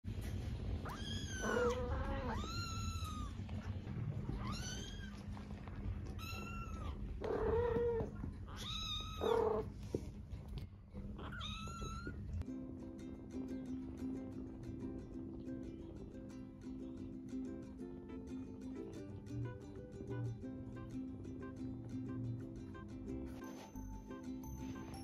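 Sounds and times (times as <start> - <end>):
kittens meowing: 0.8 - 9.8, 11.1 - 12.4.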